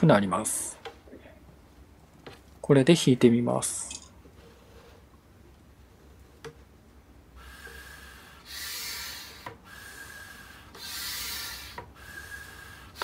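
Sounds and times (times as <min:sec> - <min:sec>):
hand pump rasping strokes: 0:07.4 - 0:13.0.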